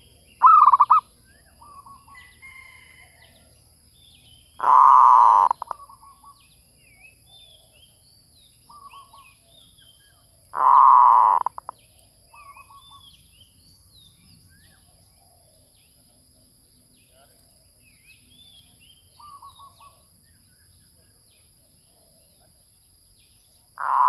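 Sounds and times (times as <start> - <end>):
dove cooing trills: 0.0 - 2.8, 4.6 - 6.3, 10.6 - 11.7, 23.8 - 24.0
bird chirps: 0.0 - 24.0.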